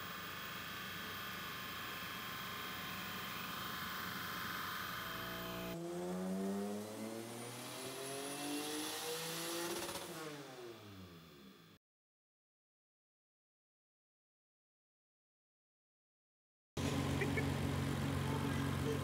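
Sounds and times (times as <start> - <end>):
thin high whine: 0.0 - 5.8
shop noise hum: 0.0 - 6.1, 16.8 - 19.0
engine revving under load: 5.1 - 11.3.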